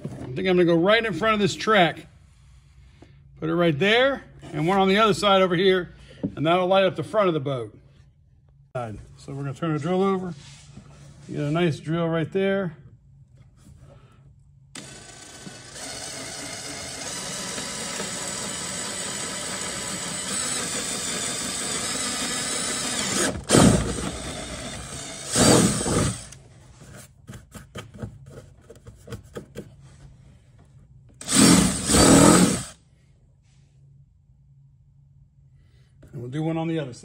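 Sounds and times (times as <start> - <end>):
cordless drill boring through plastic: 14.8 - 26.4, 31.2 - 32.8.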